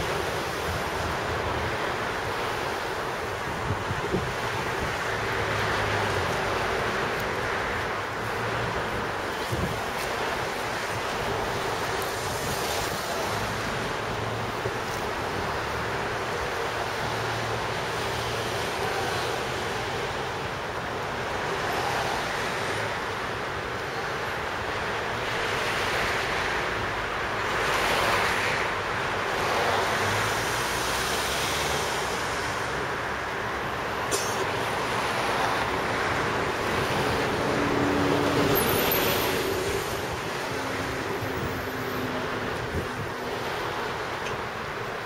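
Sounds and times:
road traffic passing: 0.0s - 45.0s
wind on microphone: 3.4s - 5.1s, 9.1s - 13.5s, 36.4s - 43.4s.

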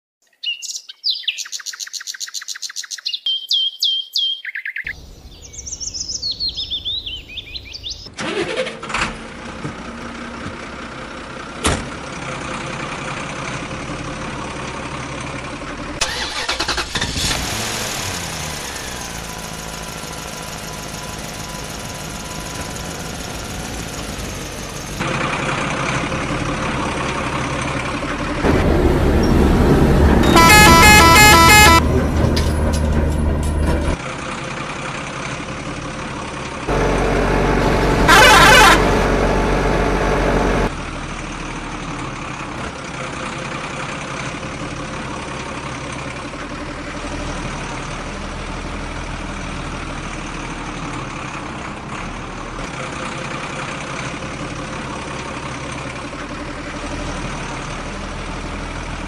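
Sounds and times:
birds chirping: 0.2s - 8.1s
truck engine: 4.9s - 59.0s.

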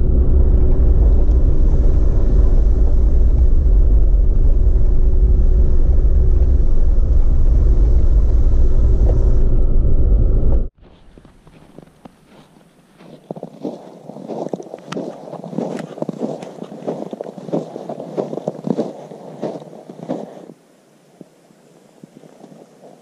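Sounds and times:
car engine and road rumble: 0.0s - 10.8s.

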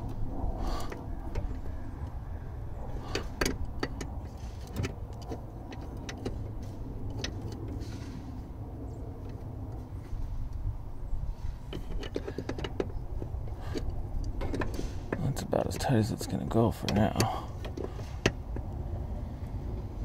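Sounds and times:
low background rumble: 0.0s - 20.0s
small clicks and knocks: 2.9s - 8.2s, 11.6s - 15.9s, 16.8s - 18.8s.

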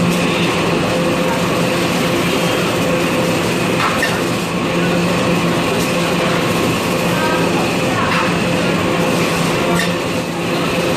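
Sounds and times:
packaging machine running: 0.0s - 10.9s.

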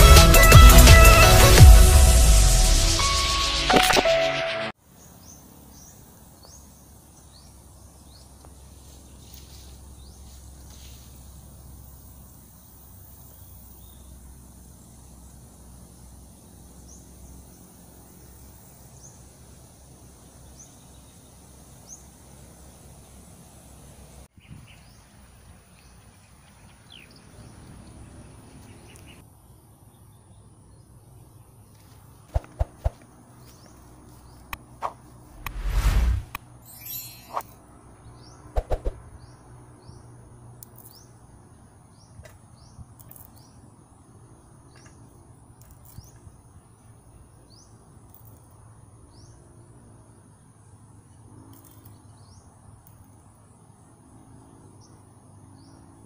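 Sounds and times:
high insect drone: 4.8s - 24.3s
birds chirping: 32.4s - 40.1s
low rumble: 35.3s - 36.4s.

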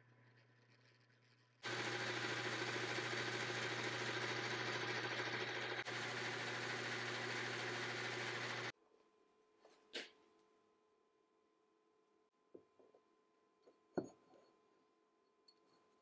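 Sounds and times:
metal lathe cutting steel: 0.6s - 8.7s.

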